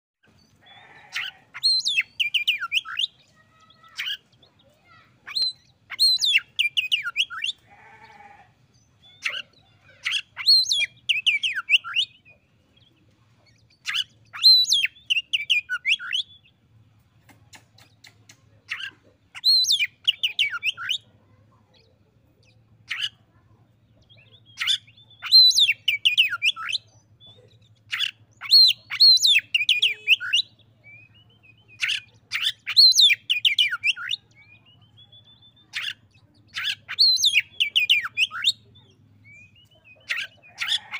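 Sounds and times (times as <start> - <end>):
bird whistling song: 1.6 - 3.2, 5.3 - 7.6, 13.8 - 16.4, 24.2 - 26.9, 27.9 - 40.9.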